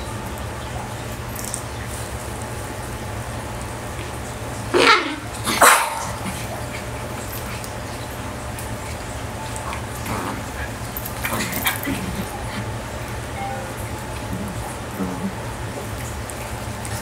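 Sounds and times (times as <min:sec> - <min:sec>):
dog barking: 0:04.8 - 0:06.3.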